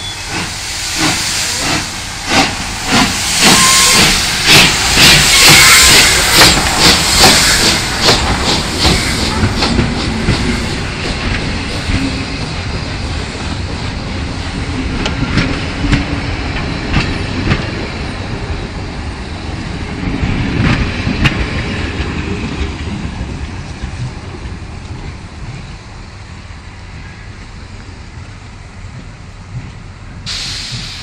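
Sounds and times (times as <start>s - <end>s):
steam hiss: 0.0s - 14.6s, 30.2s - 31.0s
steam locomotive chuffing: 0.0s - 27.4s, 28.1s - 31.0s.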